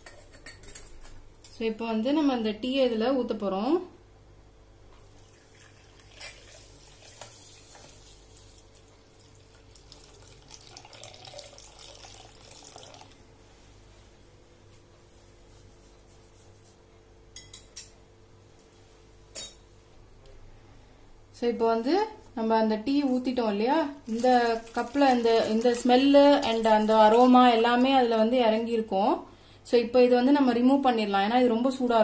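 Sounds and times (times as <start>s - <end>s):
tea pouring and splashing: 5.1s - 13.2s, 24.0s - 27.4s.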